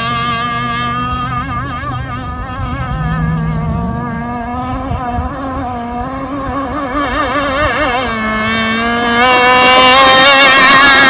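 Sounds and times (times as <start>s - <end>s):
rc boat motor high whine: 0.0s - 11.0s.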